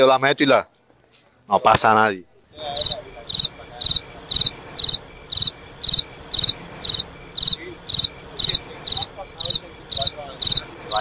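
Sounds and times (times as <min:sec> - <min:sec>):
cricket chirping: 0:02.3 - 0:11.0.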